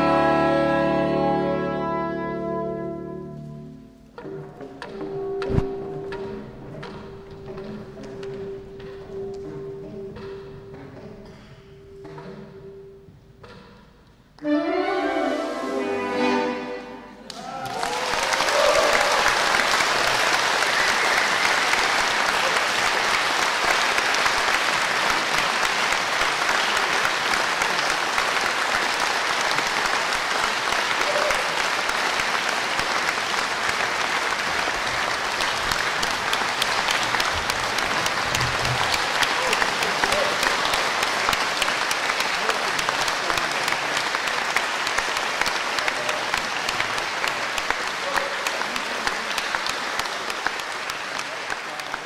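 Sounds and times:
saxophones playing: 0.0 - 6.5, 14.4 - 17.2
audience applauding: 17.2 - 52.0.

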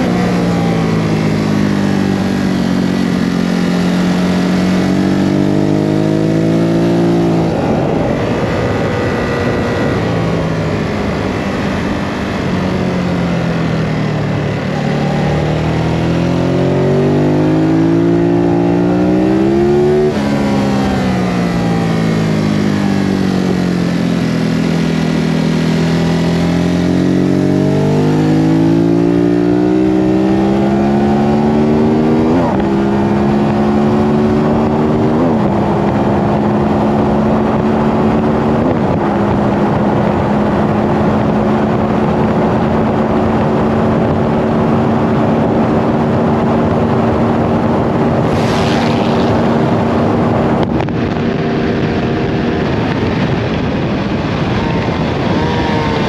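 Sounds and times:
motorcycle engine revving: 0.0 - 56.0
wind noise: 0.0 - 56.0
gear changes: 14.1 - 56.0.

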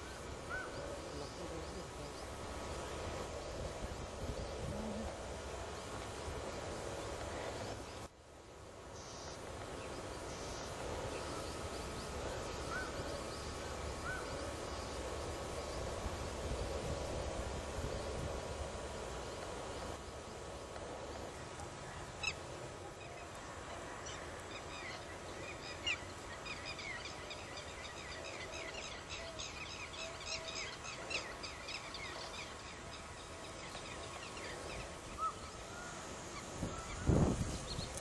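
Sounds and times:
steady outdoor hiss: 0.0 - 38.0.

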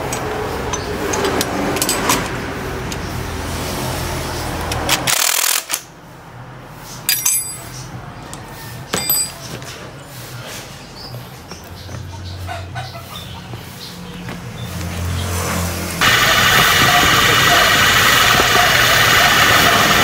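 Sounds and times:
metal tools clinking on steel: 0.0 - 3.1, 7.0 - 9.9.

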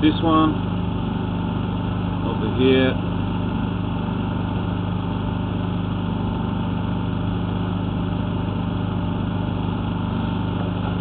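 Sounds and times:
engine running steadily: 0.0 - 11.0.

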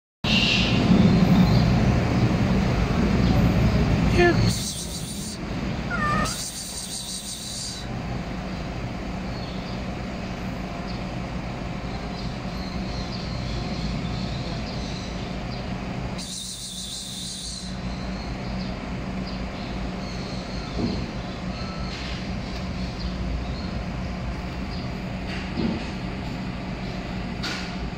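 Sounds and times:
low mechanical hum and rumble: 0.2 - 27.9
high-pitched hissing buzz: 4.2 - 5.4, 6.1 - 7.9, 16.2 - 17.8.

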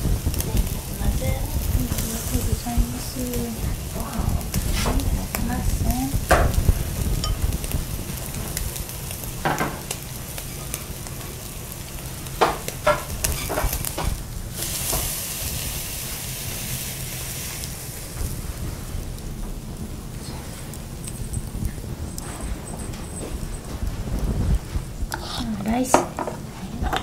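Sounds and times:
steak sizzling on a grill: 0.0 - 27.0
chopsticks clicking on grill: 12.2 - 14.2.

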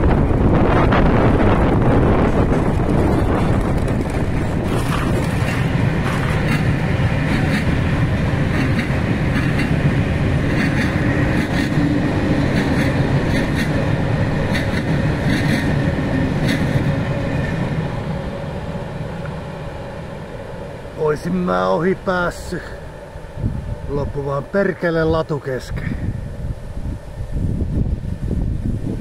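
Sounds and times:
freight train rumbling past: 0.0 - 29.0
wheels clicking over rail joints: 2.2 - 17.5.

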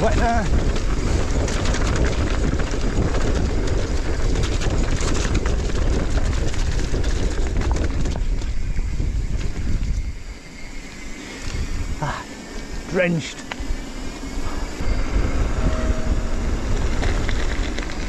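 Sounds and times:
bike clicks and clatters: 0.0 - 10.0, 16.8 - 18.0
wind rumble on microphone: 0.0 - 12.8, 13.4 - 18.0
tyres crunching over rock: 16.8 - 18.0.

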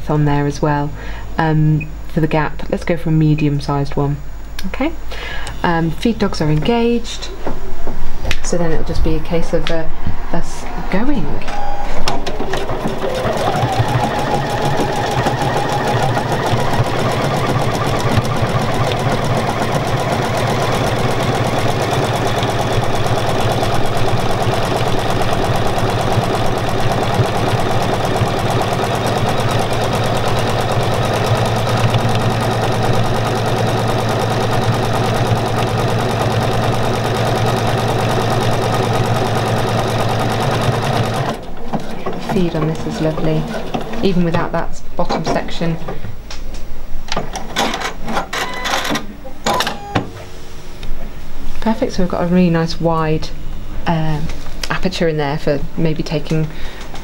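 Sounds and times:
sewing machine stitching: 11.5 - 44.6.

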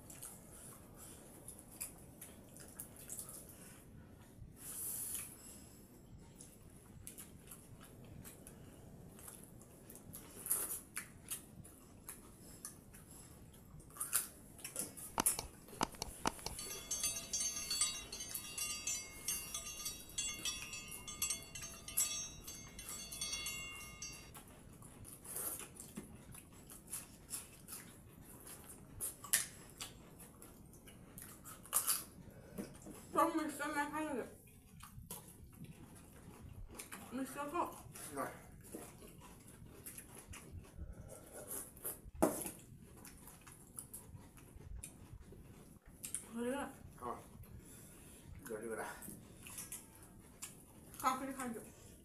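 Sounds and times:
chewing: 0.0 - 5.4, 6.1 - 33.2, 34.4 - 52.0
bowl clicks: 15.1 - 16.6
faint chiming tone pattern: 16.3 - 24.3.

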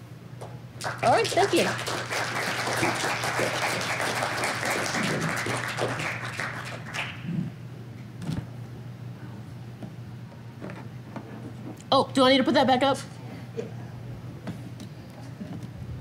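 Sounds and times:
audience applauding: 0.8 - 7.3.

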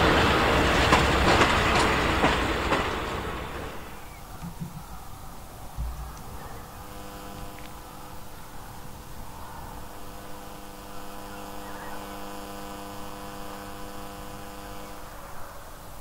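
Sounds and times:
diesel locomotive engine running: 0.0 - 5.0.

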